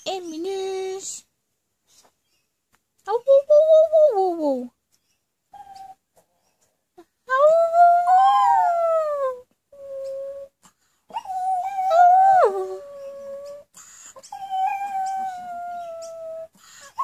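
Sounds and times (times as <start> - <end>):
dog howling: 14.3 - 16.5.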